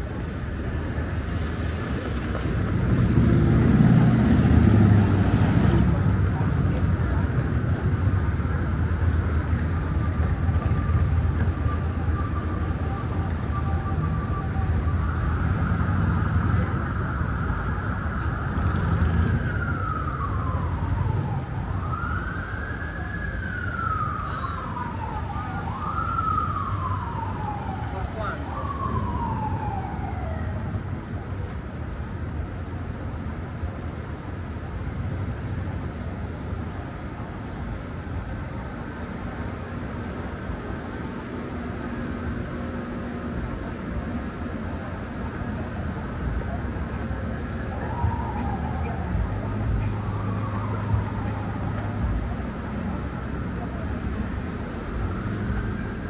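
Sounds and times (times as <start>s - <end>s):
emergency vehicle siren wailing: 0.0s - 56.0s
street traffic: 0.0s - 56.0s
vehicle passing loudly: 2.5s - 8.5s.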